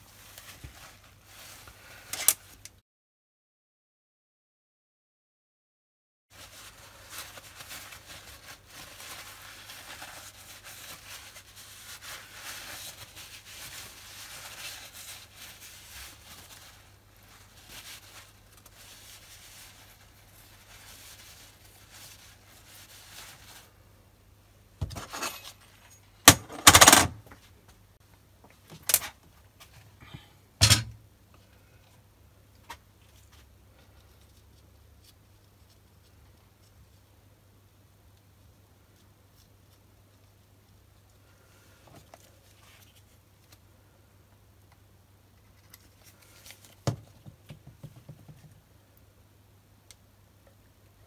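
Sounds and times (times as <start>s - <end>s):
paper towel rubbing metal: 6.4s - 23.7s.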